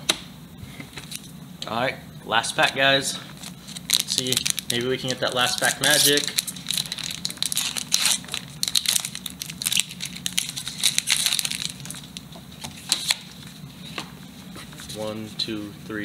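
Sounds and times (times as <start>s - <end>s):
foil wrapper crinkling and tearing: 3.4s - 12.3s.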